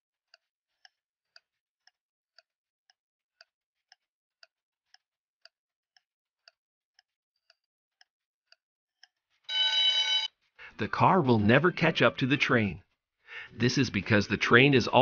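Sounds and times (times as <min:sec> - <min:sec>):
faint clock ticks: 0:00.3 - 0:09.2.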